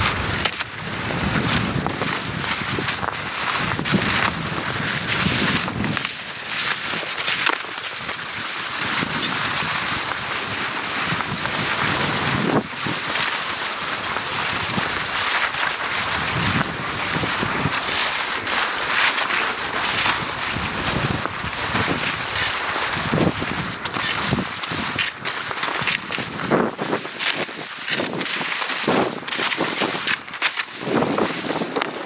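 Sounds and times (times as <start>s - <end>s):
wind buffeting microphone: 0.0s - 6.1s, 16.0s - 25.1s
skis gliding on snow: 0.0s - 32.0s.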